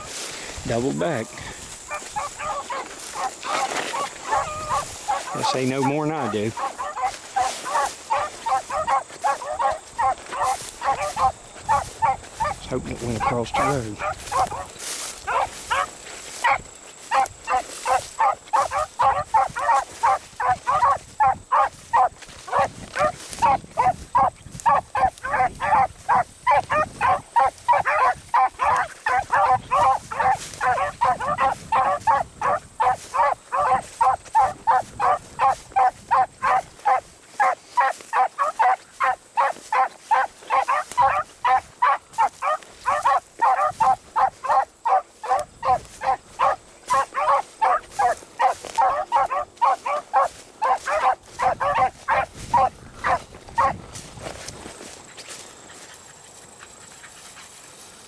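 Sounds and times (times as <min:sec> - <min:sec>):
hounds baying: 0:00.0 - 0:58.0.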